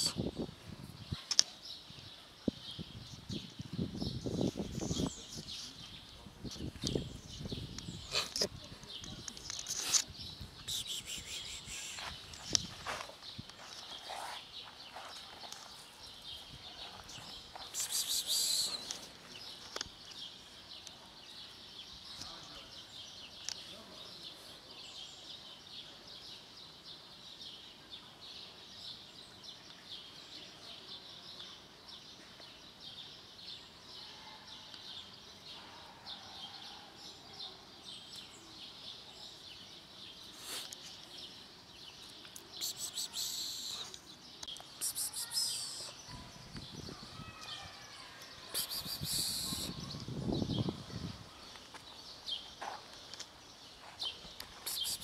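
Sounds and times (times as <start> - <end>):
birds chirping and calling: 0.0 - 25.5, 37.8 - 55.0
rustling against microphone: 3.2 - 20.3.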